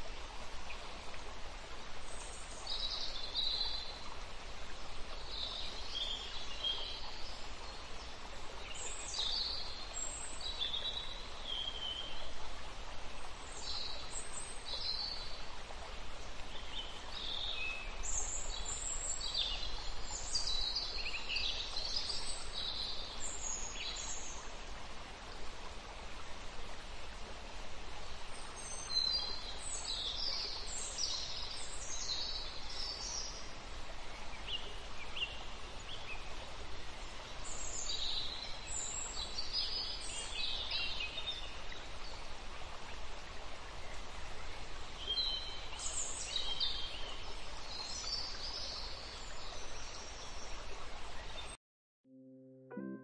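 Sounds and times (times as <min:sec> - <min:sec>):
background hiss: 0:00.0 - 0:51.5.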